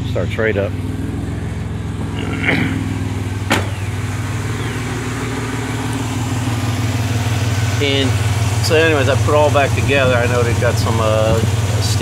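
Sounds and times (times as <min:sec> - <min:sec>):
car engine idling: 0:00.0 - 0:12.0
sharp knock: 0:03.5 - 0:03.8.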